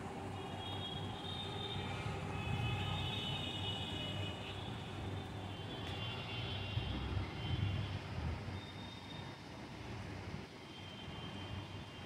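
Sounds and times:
faint high whine: 0:08.5 - 0:09.4.

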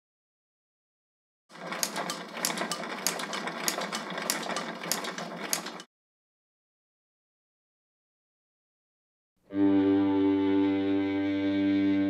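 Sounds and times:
rhythmic mechanical clatter: 0:01.5 - 0:05.9.

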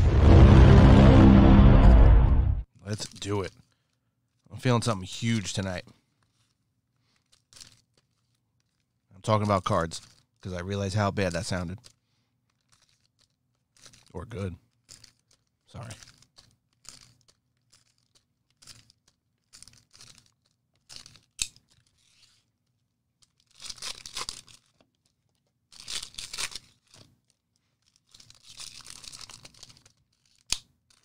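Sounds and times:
packaging tearing and crumpling: 0:09.5 - 0:10.4, 0:12.5 - 0:22.4, 0:23.2 - 0:31.0.

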